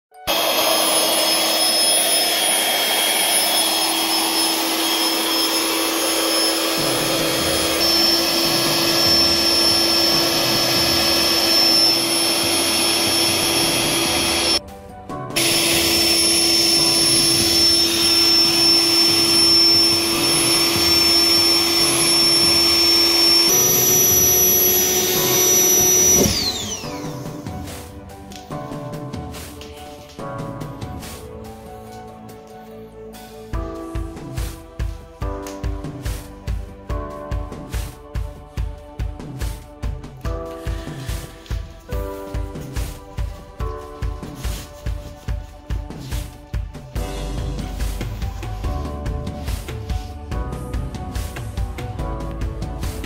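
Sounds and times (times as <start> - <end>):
electric air pump whirring: 0.2 - 14.6, 15.4 - 28.3.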